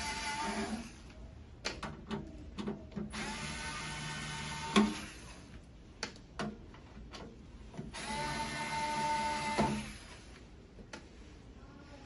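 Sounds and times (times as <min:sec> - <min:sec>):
electric screwdriver whirring: 0:03.1 - 0:05.4, 0:07.9 - 0:10.3.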